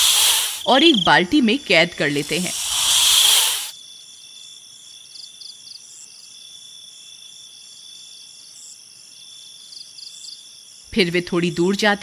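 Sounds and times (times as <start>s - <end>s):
snake hissing: 0.0s - 0.9s, 1.9s - 3.8s
crickets chirping: 0.0s - 10.9s.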